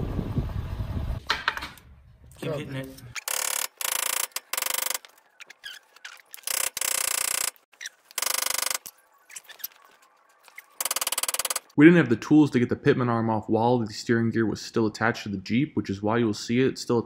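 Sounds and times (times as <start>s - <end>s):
socket ratchet clicking: 3.2s - 5.1s, 6.4s - 7.6s, 8.2s - 8.9s, 10.8s - 11.7s.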